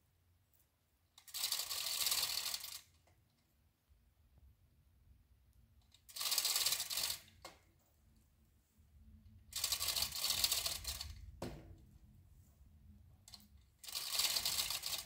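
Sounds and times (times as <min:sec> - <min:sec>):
chain rattling through hoist: 0:01.2 - 0:02.8, 0:06.1 - 0:07.3, 0:09.6 - 0:11.1, 0:13.8 - 0:15.0
ratchet pawl clicking rapidly: 0:01.2 - 0:02.9, 0:06.0 - 0:07.3, 0:09.5 - 0:11.2, 0:13.8 - 0:15.0.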